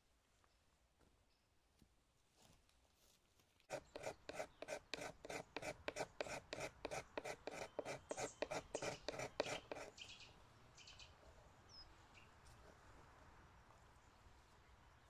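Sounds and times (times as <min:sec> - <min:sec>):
knife shaving wooden stick: 0:03.7 - 0:10.0.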